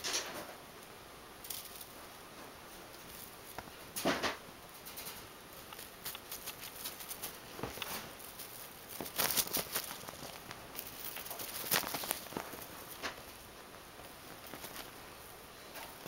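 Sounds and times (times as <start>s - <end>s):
kittens' paws scratching bedspread: 5.2s - 16.0s.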